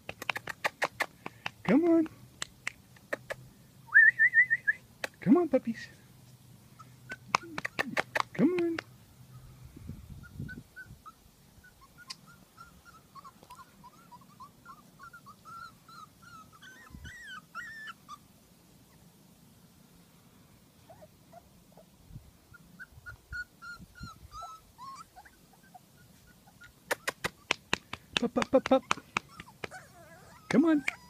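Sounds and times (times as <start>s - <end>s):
puppies whimpering: 10.2s - 18.2s, 22.5s - 26.9s, 28.7s - 31.0s.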